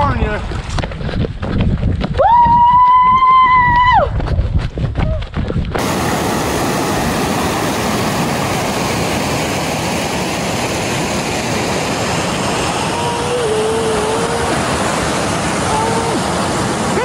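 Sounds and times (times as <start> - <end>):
water rushing over rocks: 5.8 - 17.0.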